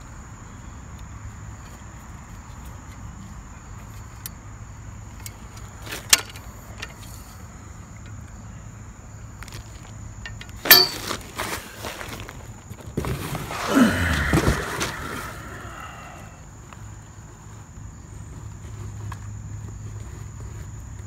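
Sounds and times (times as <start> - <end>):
metal poles clattering: 10.3 - 11.6.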